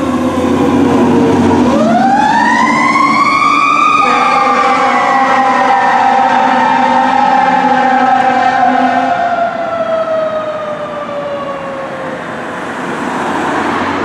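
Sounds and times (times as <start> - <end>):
fire engine siren winding down: 0.0 - 14.0
road noise of passing engine: 0.0 - 14.0.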